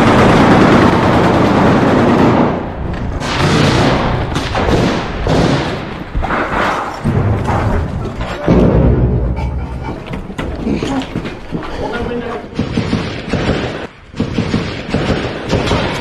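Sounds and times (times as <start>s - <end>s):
gunfire: 0.0s - 7.5s, 12.5s - 16.0s.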